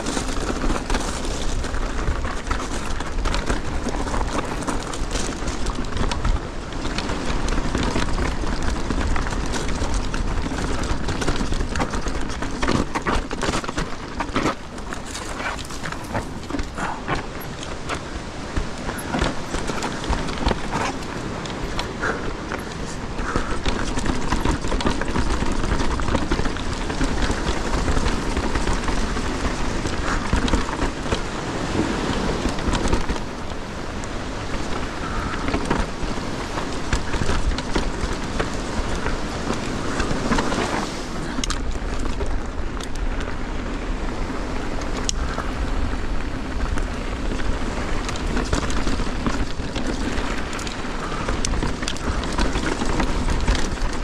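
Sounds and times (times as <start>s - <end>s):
bike chain and frame rattling: 0.0s - 54.0s
tyres crunching on loose ground: 0.0s - 54.0s
wind buffeting microphone: 0.0s - 54.0s.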